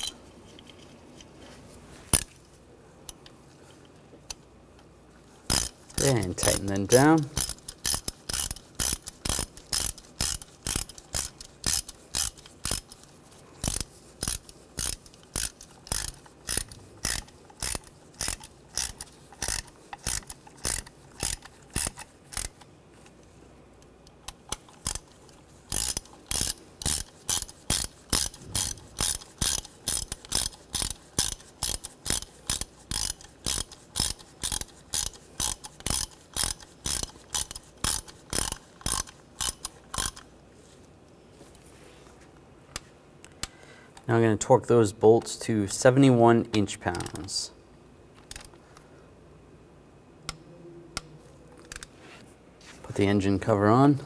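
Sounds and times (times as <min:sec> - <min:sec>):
hand ratchet clicking: 0:05.5 - 0:22.7, 0:24.1 - 0:40.3.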